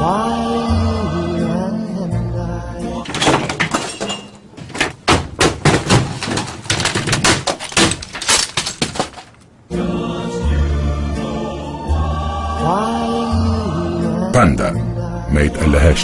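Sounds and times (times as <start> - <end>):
objects crashing and smashing: 3.0 - 9.5.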